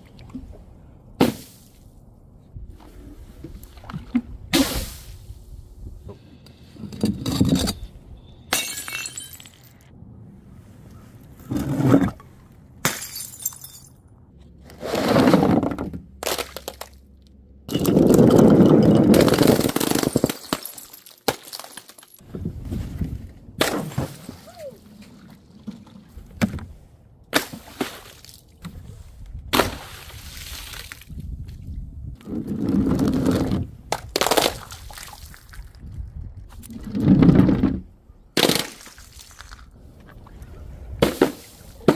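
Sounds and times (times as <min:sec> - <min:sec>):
glass bottles shattering on tiles: 0:08.5 - 0:09.7, 0:12.8 - 0:14.0, 0:17.7 - 0:22.2.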